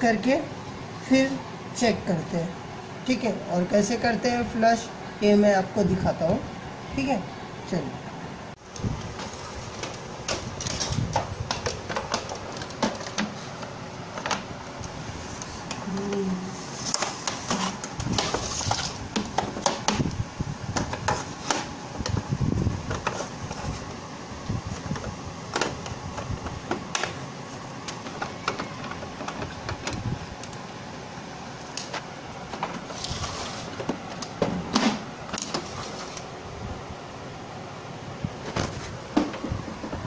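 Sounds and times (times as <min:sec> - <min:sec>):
plastic clicks and rattles: 0:08.7 - 0:14.5.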